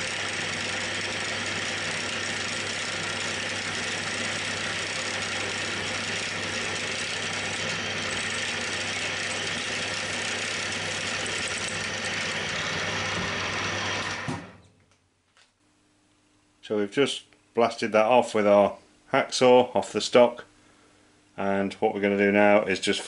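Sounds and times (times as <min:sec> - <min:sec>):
drill bit drilling steel: 0:00.0 - 0:14.6
milling machine motor humming: 0:00.0 - 0:14.7.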